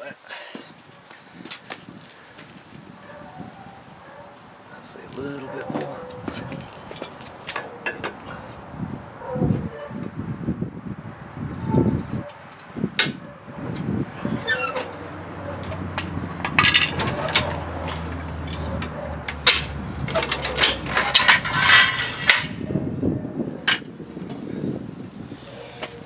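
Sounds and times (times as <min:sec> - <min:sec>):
steel clanks and scrapes: 0:12.5 - 0:22.8.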